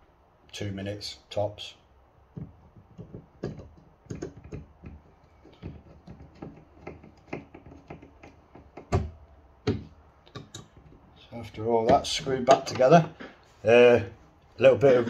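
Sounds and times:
knock on plastic: 2.4 - 10.6
screwdriver clicks and taps: 2.4 - 11.0.

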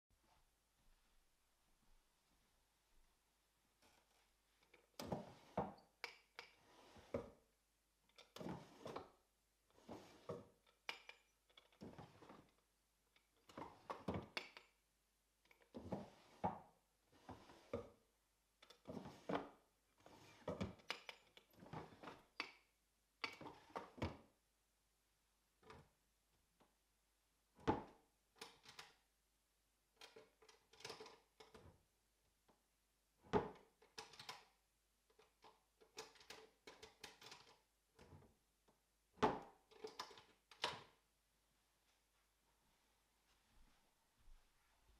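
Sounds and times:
wooden drawers sliding: 5.0 - 5.8, 6.4 - 7.4, 8.3 - 11.1, 11.8 - 12.5, 15.8 - 17.9, 18.8 - 22.4.

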